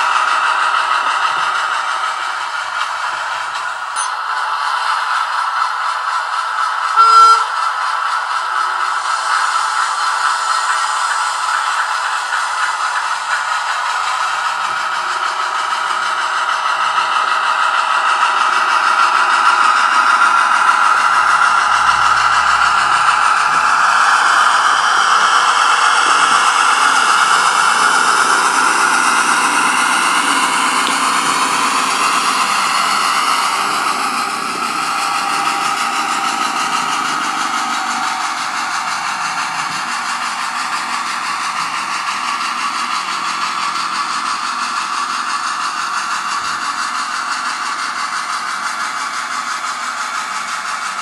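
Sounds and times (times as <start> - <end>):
model locomotive diesel engine: 0.0 - 51.0.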